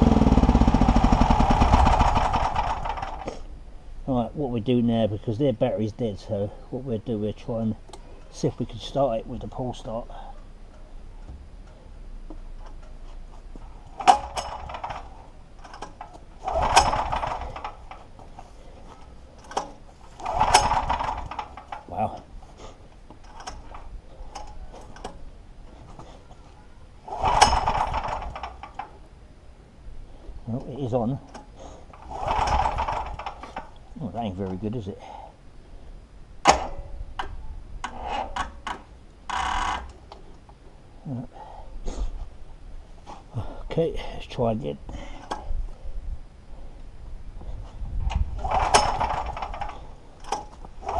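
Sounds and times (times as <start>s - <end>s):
recoil starter pulls: 0.0s - 3.5s, 11.2s - 29.0s, 30.4s - 34.7s, 36.4s - 40.3s, 48.1s - 50.9s.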